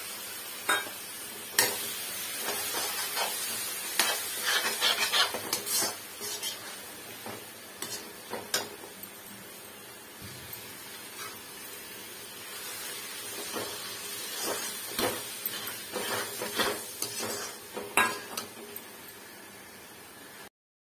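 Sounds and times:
food sizzling: 0.0s - 20.5s
metal spatula scraping a pan: 1.6s - 6.9s, 7.8s - 8.7s, 11.2s - 11.4s, 13.4s - 18.5s.

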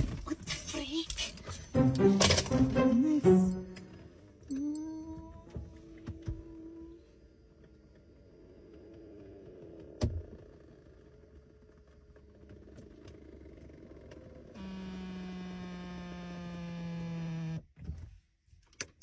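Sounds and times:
electric seat motor whirring: 14.6s - 17.6s.

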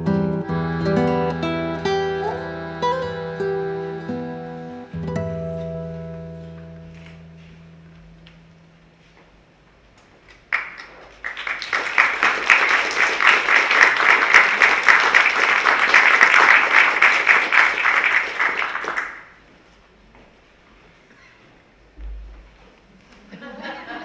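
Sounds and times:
audience applauding: 10.3s - 19.4s.

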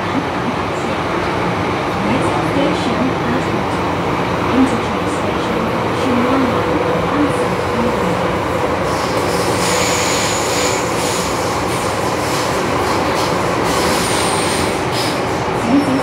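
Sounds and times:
train wheels and motors rumbling: 0.0s - 16.0s
high wheel squeals: 8.9s - 11.3s.

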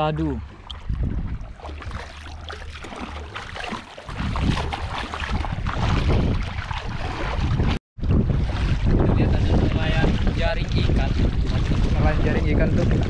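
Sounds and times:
sea waves: 0.0s - 7.8s
wind rumbling on microphone: 0.0s - 13.0s
crackle and splashing: 0.5s - 9.0s, 9.8s - 13.0s.

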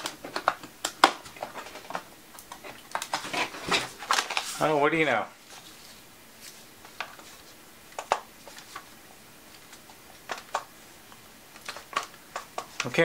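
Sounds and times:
hard drive caddy clicks and taps: 7.9s - 8.9s, 10.2s - 10.7s, 11.6s - 13.0s.

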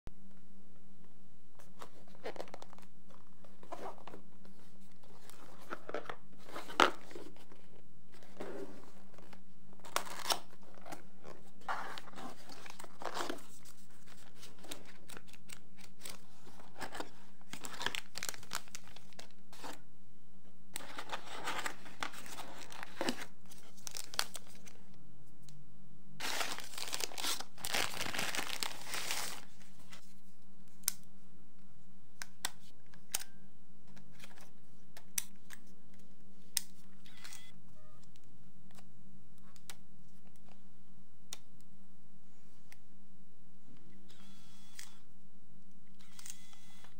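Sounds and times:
plastic wrapping crinkling: 4.9s - 19.4s, 20.8s - 24.8s, 26.2s - 30.0s.

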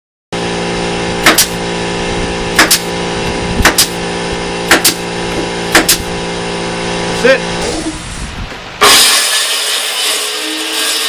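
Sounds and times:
steady hum: 0.4s - 11.0s
pneumatic nailer firing: 1.2s - 1.7s, 2.5s - 3.0s, 3.6s - 4.0s, 4.6s - 5.1s, 5.7s - 6.1s, 8.8s - 11.0s.

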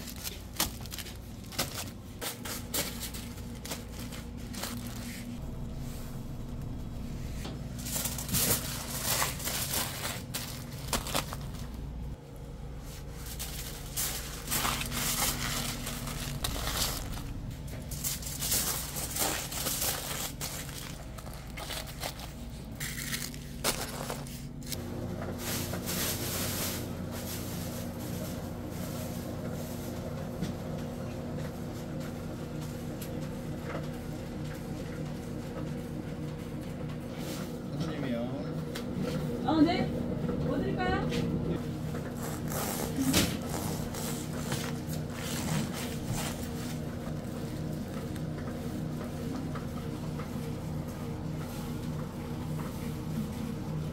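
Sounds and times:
aluminium foil crinkling: 0.0s - 6.8s, 7.7s - 12.0s, 12.9s - 29.9s
low background hum: 0.0s - 53.9s
multi-tone hum: 0.0s - 53.9s.

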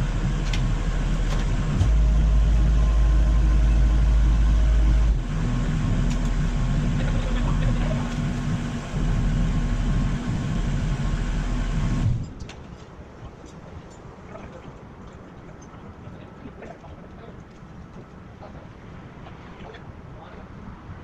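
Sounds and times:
heavy equipment engine running: 0.0s - 12.3s.

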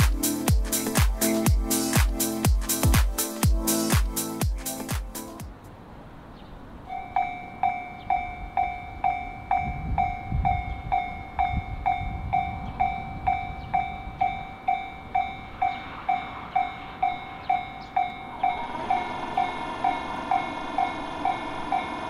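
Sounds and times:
level crossing bell clanging: 6.9s - 22.0s.

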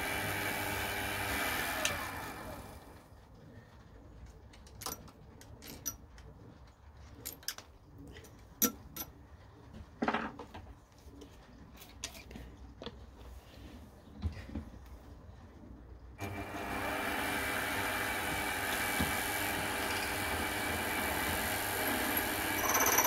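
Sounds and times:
metal chips clicking: 22.2s - 23.0s.

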